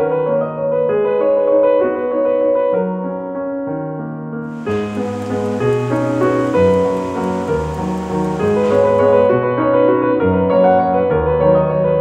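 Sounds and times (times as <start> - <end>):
light ticking rhythm: 4.5 - 9.3
piano chords: 4.5 - 9.4.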